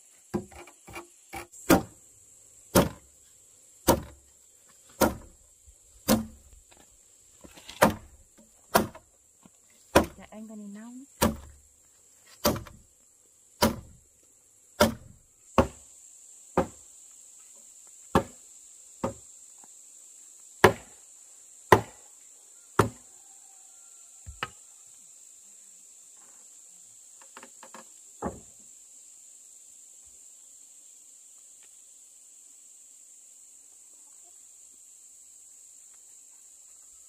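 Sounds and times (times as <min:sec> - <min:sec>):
high insect buzz: 0:00.0 - 0:37.0
hammer striking timber beam: 0:07.8 - 0:08.0, 0:14.8 - 0:15.8.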